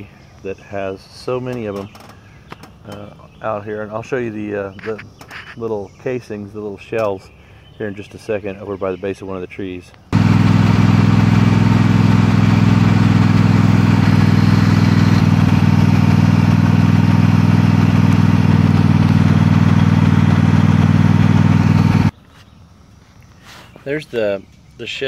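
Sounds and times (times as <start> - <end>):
lawn mower engine running: 10.1 - 22.1.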